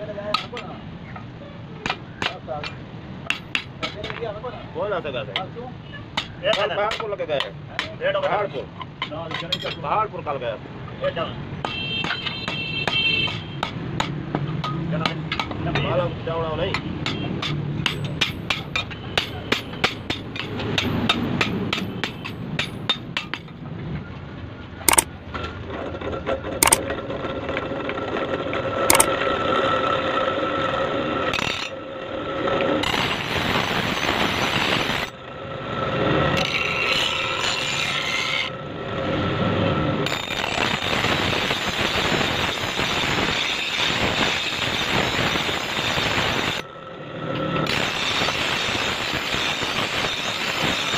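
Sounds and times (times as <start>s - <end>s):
grinding wheel on steel: 32.8s - 35.1s, 36.3s - 38.5s, 40.0s - 50.9s
bench grinder whine: 47.6s - 50.9s.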